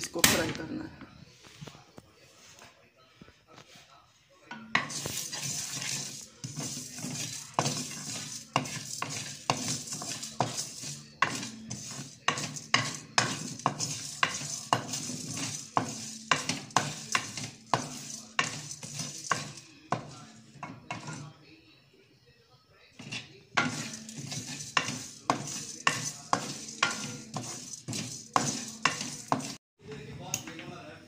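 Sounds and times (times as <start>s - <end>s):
spatula scraping metal pan: 4.5s - 21.4s, 22.9s - 29.6s
spices sizzling in oil: 4.7s - 21.2s, 23.0s - 29.6s.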